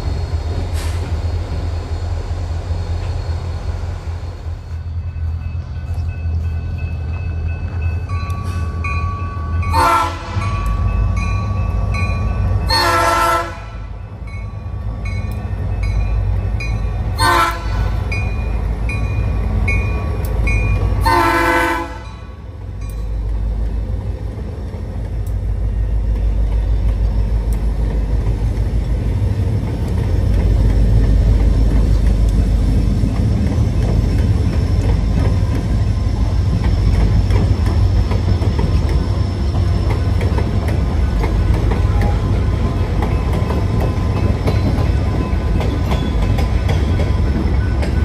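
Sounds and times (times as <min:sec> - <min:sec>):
diesel locomotive engine rumble: 0:00.0 - 0:48.0
locomotive horn blasts: 0:09.7 - 0:10.5, 0:12.7 - 0:13.9, 0:17.2 - 0:18.0, 0:21.0 - 0:22.2.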